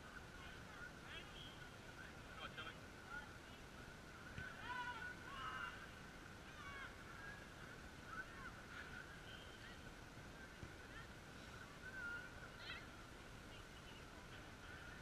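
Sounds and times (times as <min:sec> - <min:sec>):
distant children shouting: 0:04.4 - 0:09.9.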